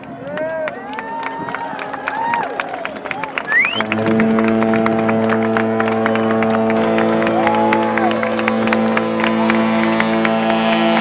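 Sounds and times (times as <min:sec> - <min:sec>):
crowd clapping and cheering: 0:00.0 - 0:11.0
drone of held pitches: 0:03.6 - 0:11.0.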